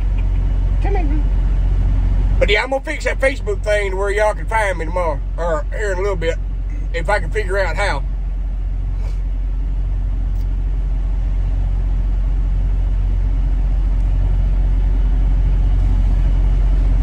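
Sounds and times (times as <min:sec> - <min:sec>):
truck diesel engine idling: 0:00.0 - 0:17.0.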